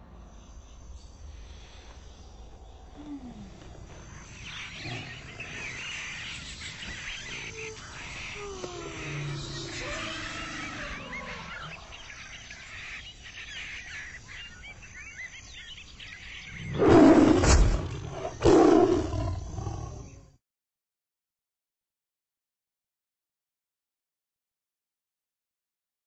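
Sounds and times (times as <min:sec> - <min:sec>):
animal roaring: 0:04.7 - 0:05.9, 0:07.3 - 0:12.1, 0:16.6 - 0:20.2.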